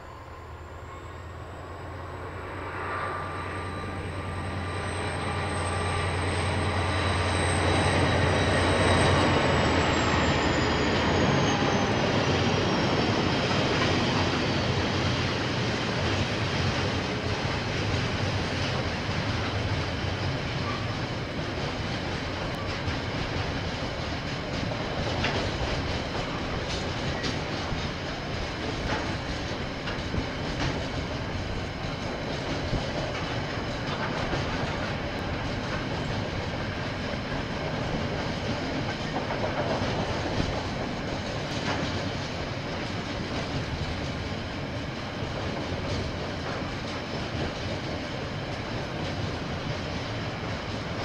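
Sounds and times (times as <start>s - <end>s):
train wagons rumbling past: 0.0s - 51.0s
wheels clicking over rail joints: 20.6s - 44.7s.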